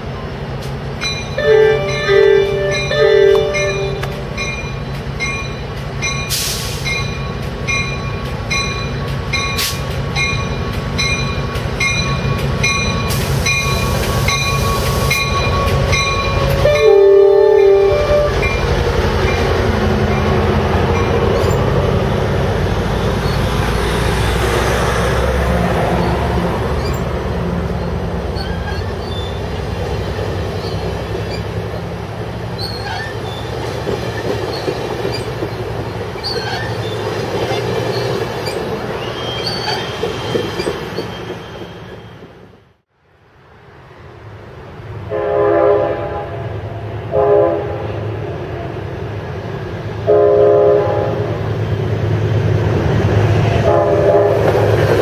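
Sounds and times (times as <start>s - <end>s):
diesel locomotive engine: 0.0s - 55.0s
train cars rumbling: 0.0s - 55.0s
train horn blast: 1.4s - 4.3s, 16.4s - 18.5s, 45.1s - 46.4s, 47.1s - 48.0s, 50.0s - 51.4s, 53.6s - 54.7s
wheel squeal: 26.0s - 27.2s, 28.3s - 29.6s, 30.5s - 31.6s, 32.6s - 42.5s.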